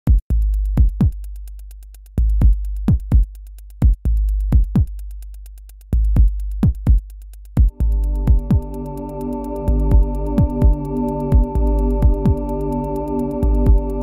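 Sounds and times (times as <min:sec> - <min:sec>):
punchy kick drums: 0:00.0 - 0:01.3, 0:02.2 - 0:05.2, 0:05.8 - 0:08.8, 0:09.7 - 0:12.6, 0:13.4 - 0:14.0
fast hi-hat ticks: 0:00.0 - 0:14.0
deep bass note: 0:07.6 - 0:14.0.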